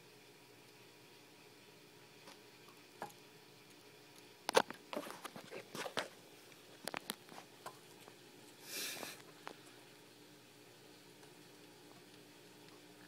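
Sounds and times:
geckos chewing with crunches: 4.5 - 9.9.

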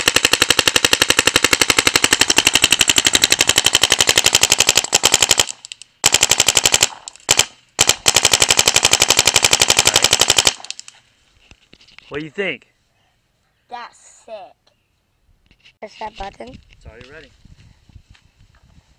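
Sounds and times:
paintball marker rapid firing: 0.0 - 10.8.

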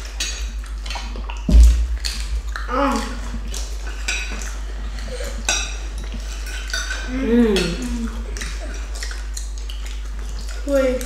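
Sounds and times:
cutlery clinking on plates: 3.9 - 4.6, 5.2 - 9.6.

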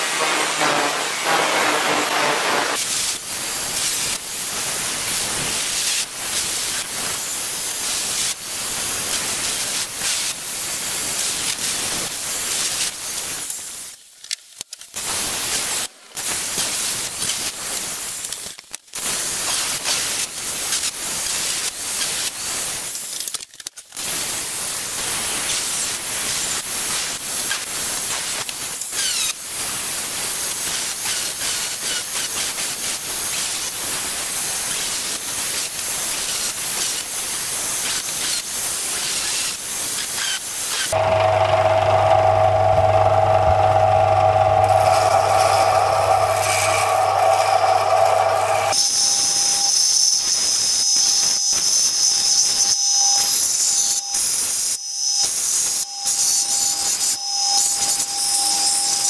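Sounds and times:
angle grinder cutting steel: 0.0 - 2.8, 39.2 - 53.6.

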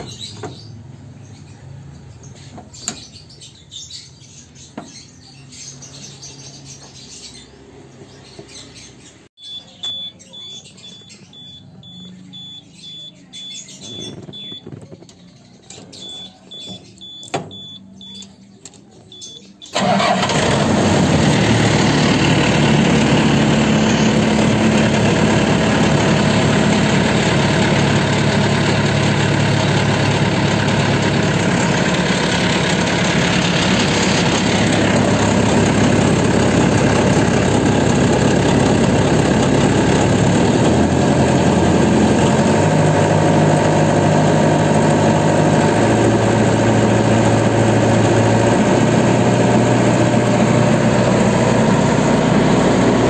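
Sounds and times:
high-pitched electronic beeps: 9.4 - 15.0, 16.0 - 18.4
diesel engine running: 9.5 - 18.2, 19.1 - 53.0.

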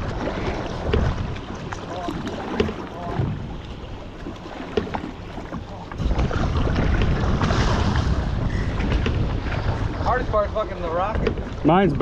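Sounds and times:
wind buffeting microphone: 0.0 - 4.0, 4.9 - 12.0
water sloshing against boat hull: 0.0 - 12.0.

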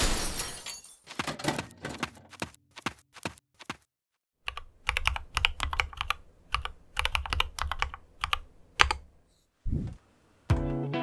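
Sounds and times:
mechanical keyboard typing: 4.5 - 9.0.

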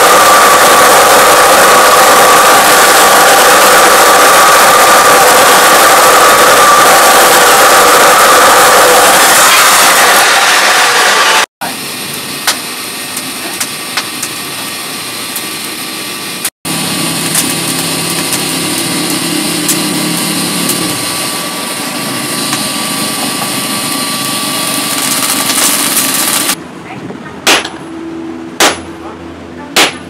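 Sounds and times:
cut-off saw cutting steel: 0.0 - 12.1, 16.7 - 26.6
air blower humming: 0.0 - 26.6
burning coal crackling: 11.9 - 26.6.

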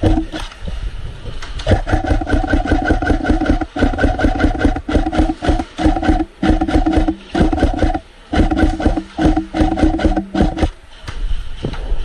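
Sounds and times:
airsoft guns firing full-auto: 1.7 - 10.7.

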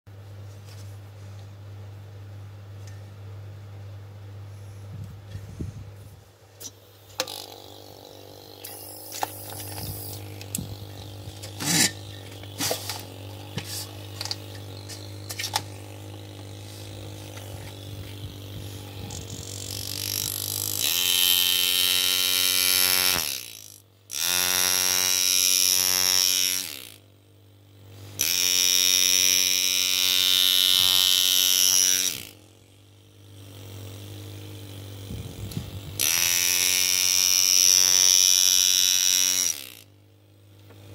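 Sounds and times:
faint hum: 0.1 - 20.9
engraving handpiece buzzing: 6.6 - 40.9.

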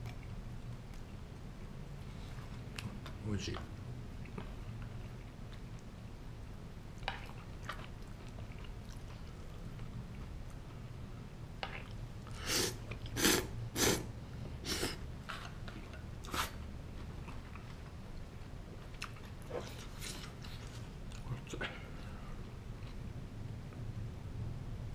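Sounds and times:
chewing: 6.9 - 10.8, 11.6 - 13.4, 15.2 - 23.1
person slurping noodles: 12.3 - 15.0.

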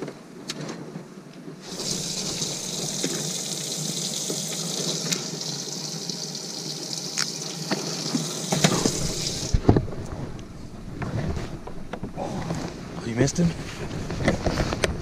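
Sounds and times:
water spraying into a tank: 1.6 - 9.6.

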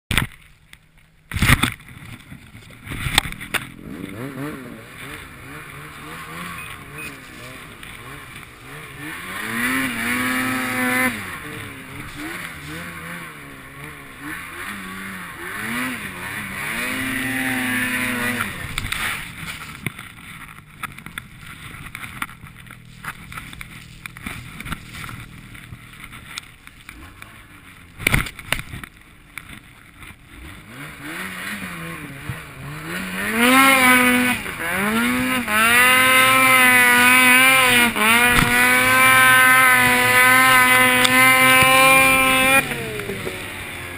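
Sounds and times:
snowmobile engine revving: 1.5 - 28.8, 30.0 - 43.9.

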